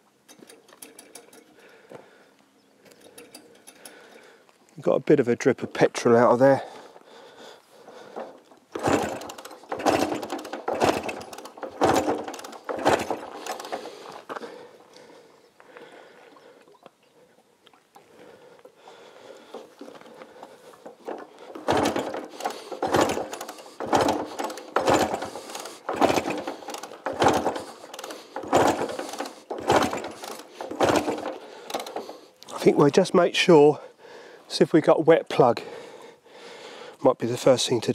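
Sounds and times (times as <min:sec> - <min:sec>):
kick-start clatter: 0:00.3 - 0:01.8, 0:07.9 - 0:14.7, 0:19.5 - 0:32.7
engine turning over: 0:07.9 - 0:14.7, 0:20.2 - 0:32.8.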